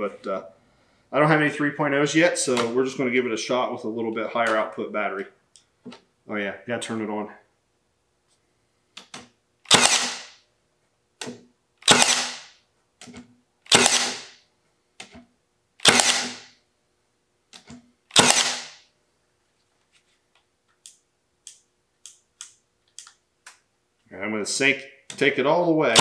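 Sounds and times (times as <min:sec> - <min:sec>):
nailer firing into wood: 0:09.7 - 0:10.4, 0:11.2 - 0:12.6, 0:13.7 - 0:14.4, 0:15.8 - 0:16.5, 0:18.1 - 0:18.8.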